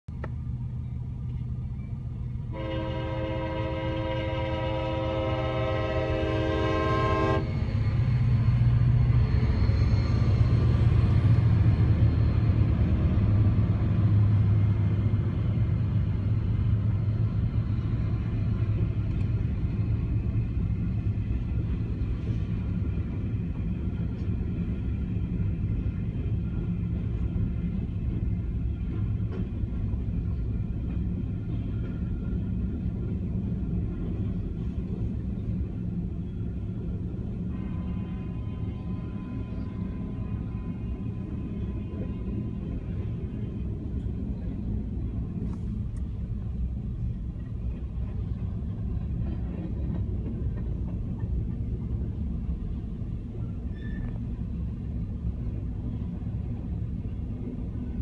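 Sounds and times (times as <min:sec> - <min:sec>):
locomotive air horn: 0:02.5 - 0:07.6, 0:37.5 - 0:42.5.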